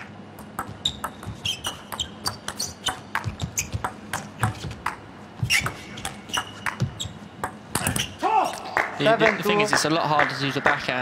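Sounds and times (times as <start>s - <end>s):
shoe squeaks on floor: 0.8s - 3.8s, 5.4s - 8.2s.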